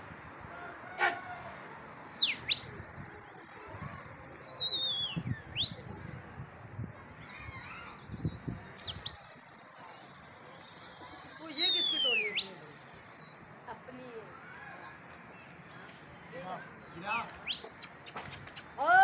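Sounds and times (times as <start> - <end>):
person whistling shrilly: 2.2 - 5.8, 9.0 - 13.6.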